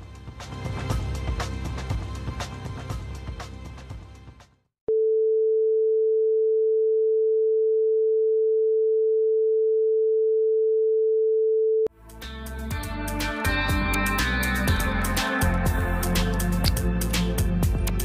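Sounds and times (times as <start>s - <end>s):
music: 0.0s - 4.7s, 11.9s - 18.0s.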